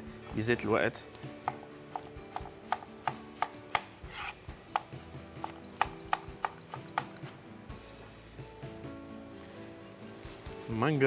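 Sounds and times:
knife chopping on cutting board: 1.2 - 7.3.

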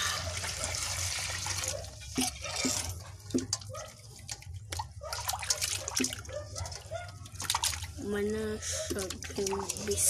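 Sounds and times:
hands rubbing and rinsing fish: 0.0 - 10.0
water splashing in a steel basin: 0.0 - 10.0.

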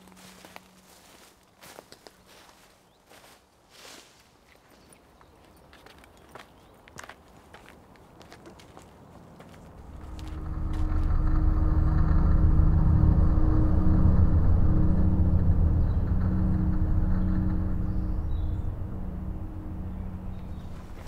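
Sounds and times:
low rumbling drone: 9.7 - 21.0.

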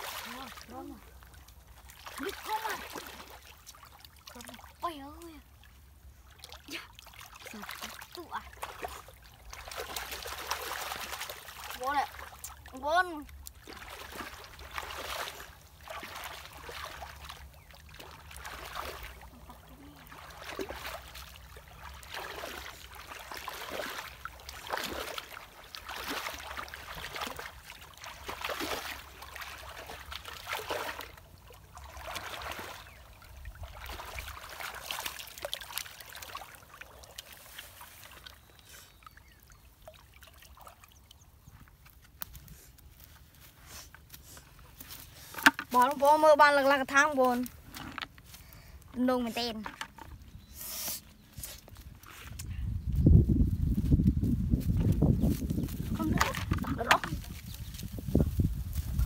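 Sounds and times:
stream water sloshing and splashing: 0.0 - 59.0.

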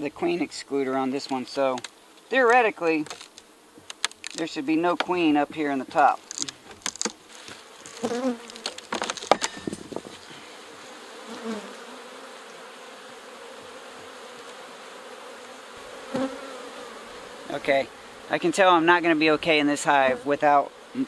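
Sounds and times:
honeybees buzzing: 0.0 - 21.0.

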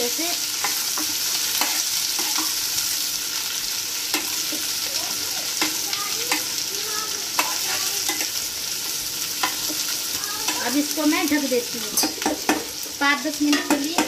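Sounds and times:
vegetables sizzling in oil: 0.0 - 14.0
spatula clinking against pan: 7.4 - 8.3, 13.5 - 14.0.

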